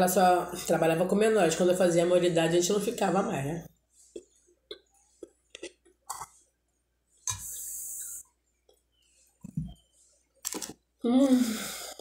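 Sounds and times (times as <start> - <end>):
person chewing toast: 4.0 - 6.5, 10.4 - 10.8.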